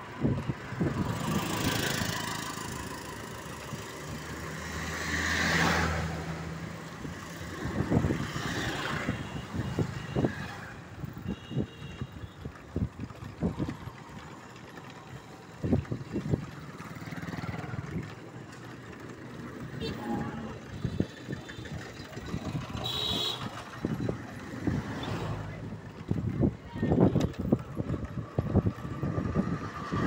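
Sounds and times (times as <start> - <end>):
vehicle engine passing by: 4.2 - 7.1.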